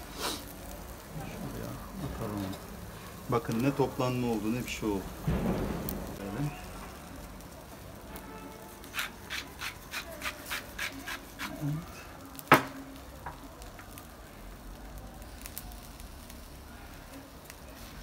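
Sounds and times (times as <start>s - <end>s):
patties sizzling on grill: 0.0s - 18.0s
seasoning shaker shaking: 8.8s - 11.8s.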